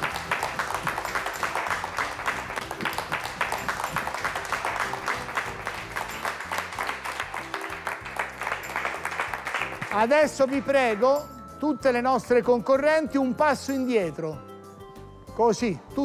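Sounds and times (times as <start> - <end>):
people clapping: 0.0 - 11.4
background music: 0.0 - 16.0.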